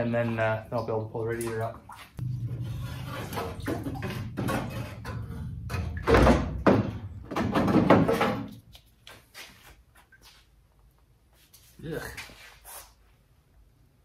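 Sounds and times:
heavy clunk: 2.3s - 8.6s
clattering knocks: 3.2s - 8.6s.

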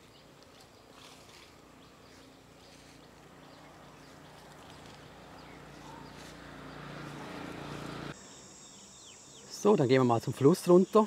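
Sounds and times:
low motor hum: 0.0s - 8.2s
high insect drone: 2.2s - 11.0s.

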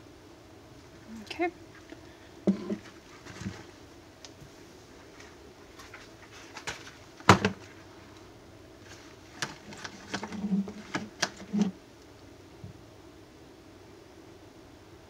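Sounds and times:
objects knocking on countertop: 2.5s - 2.8s.

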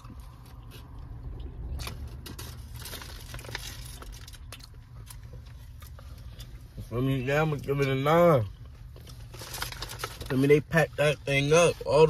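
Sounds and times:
low rumble inside a car: 0.0s - 12.0s
food wrapper crinkling: 1.8s - 6.0s, 8.9s - 10.8s.

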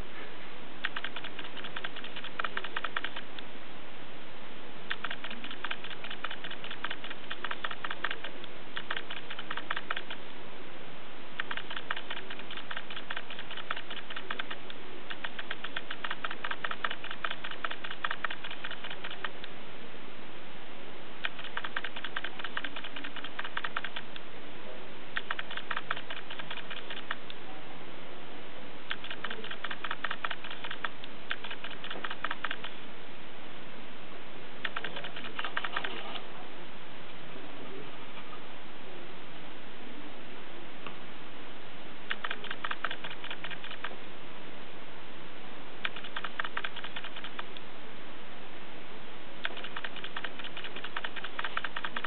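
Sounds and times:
steady background hiss: 0.0s - 52.0s
rapid light clicking: 0.8s - 3.5s, 4.9s - 10.4s, 11.4s - 19.6s, 21.2s - 24.3s, 25.2s - 27.4s, 28.9s - 32.8s, 34.6s - 36.3s, 42.1s - 44.0s, 45.8s - 47.7s, 49.4s - 52.0s.

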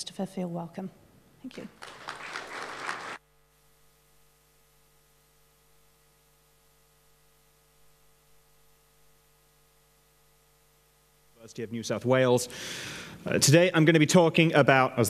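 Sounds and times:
faint mains hum: 0.0s - 15.0s
audience applause: 1.5s - 3.2s.

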